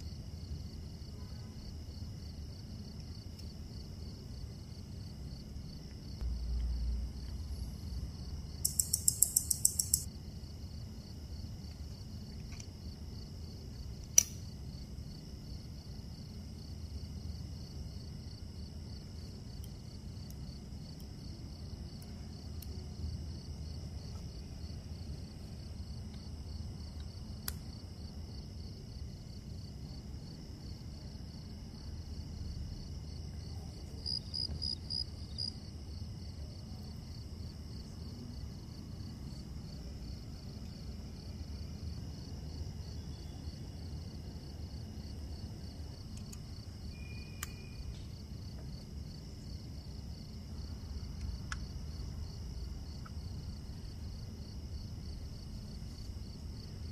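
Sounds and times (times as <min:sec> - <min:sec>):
low steady hum: 0:00.0 - 0:56.9
insect trilling: 0:08.5 - 0:10.1
faint sharp clicks: 0:14.0 - 0:14.4.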